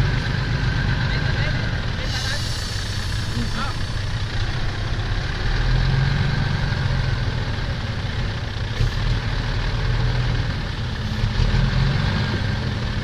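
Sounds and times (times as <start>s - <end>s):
diesel engines running: 0.0s - 13.0s.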